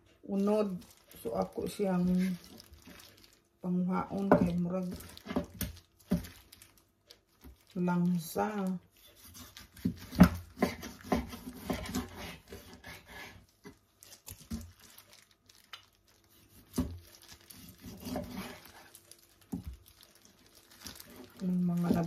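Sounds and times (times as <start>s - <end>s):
plastic gloves crinkling: 0.0s - 22.0s
knife cutting and scraping meat: 8.9s - 14.7s, 16.2s - 19.2s.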